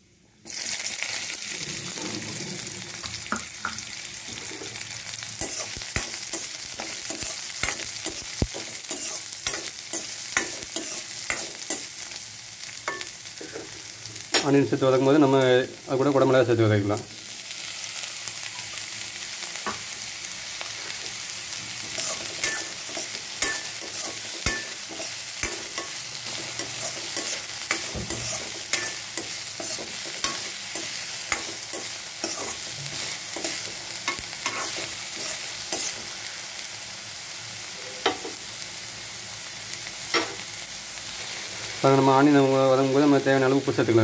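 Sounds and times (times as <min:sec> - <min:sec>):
vegetables sizzling in hot oil: 0:00.4 - 0:44.0
spatula scraping and knocking pan: 0:21.8 - 0:36.0.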